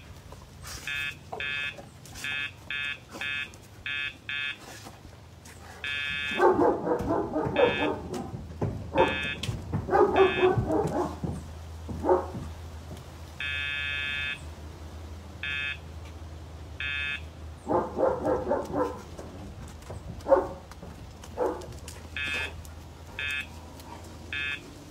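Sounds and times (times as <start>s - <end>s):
electronic buzzer beeps: 0.9s - 4.6s, 5.8s - 6.4s, 9.0s - 9.4s, 13.4s - 14.4s, 15.4s - 15.8s, 16.8s - 17.3s, 22.2s - 22.6s, 23.2s - 23.5s, 24.4s - 24.6s
large dog barking: 6.3s - 12.6s, 17.6s - 19.3s, 20.2s - 24.6s.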